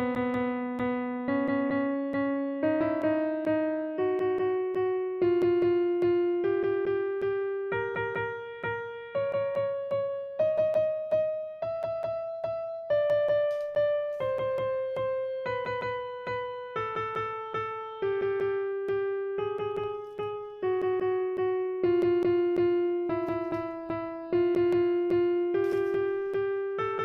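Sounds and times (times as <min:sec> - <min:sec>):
piano-like keyboard melody: 0:00.0 - 0:27.0.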